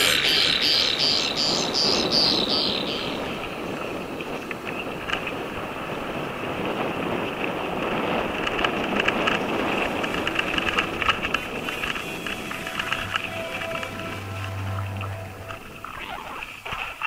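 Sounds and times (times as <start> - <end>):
wind rush on microphone: 0.0 - 14.3
bike clattering over bumps: 4.6 - 12.0
bike tyre noise: 5.1 - 13.9.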